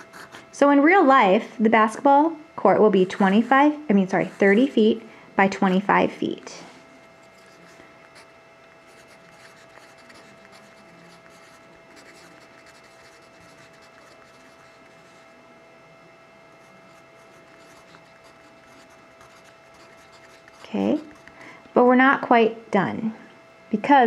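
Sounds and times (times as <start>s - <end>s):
pencil scratching on paper: 0.0s - 0.4s, 3.0s - 3.6s, 4.2s - 4.8s, 7.1s - 8.3s, 8.9s - 15.3s, 16.6s - 21.3s.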